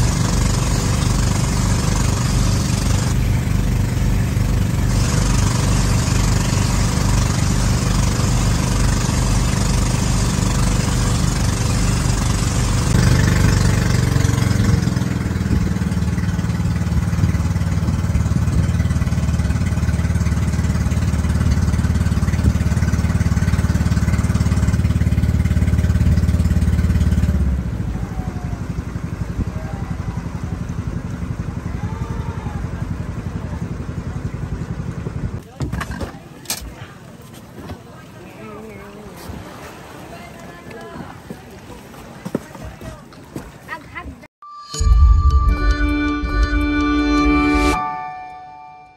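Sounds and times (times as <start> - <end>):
engine running with low hum: 0.0 - 42.2.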